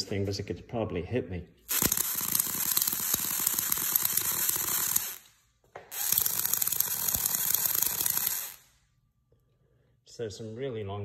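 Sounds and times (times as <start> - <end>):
electric sparks crackling: 1.7 - 8.8.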